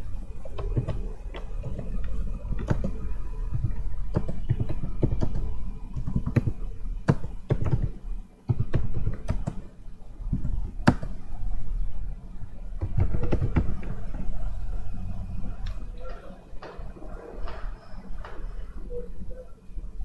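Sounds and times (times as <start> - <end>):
computer keyboard keystrokes: 0.6 - 9.6.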